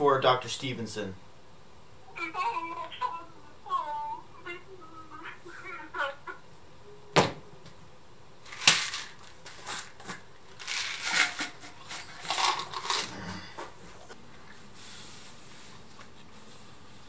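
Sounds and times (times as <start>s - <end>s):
plastic bottle crinkling: 8.5s - 13.4s.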